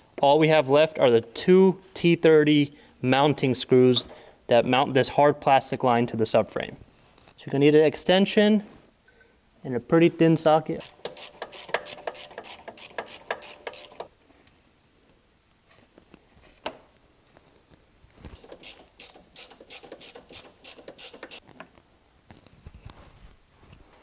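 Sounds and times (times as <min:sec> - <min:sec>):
hand ratchet clicking: 0:10.8 - 0:14.1, 0:18.4 - 0:21.4.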